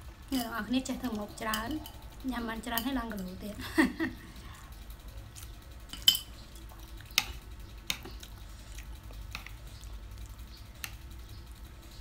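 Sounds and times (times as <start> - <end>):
metal utensils clinking on ceramic plates: 2.6 - 3.4, 5.9 - 7.4.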